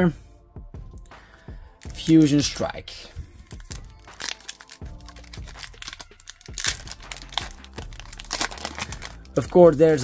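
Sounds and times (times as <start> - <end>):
foil wrapper crinkling and tearing: 3.4 - 10.0.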